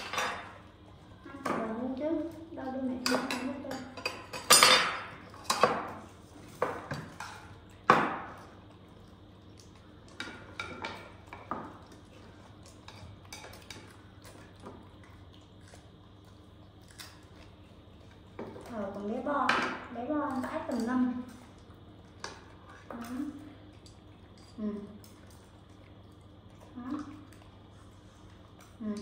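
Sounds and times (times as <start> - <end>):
cutlery clinking on a dish: 3.0 - 5.9.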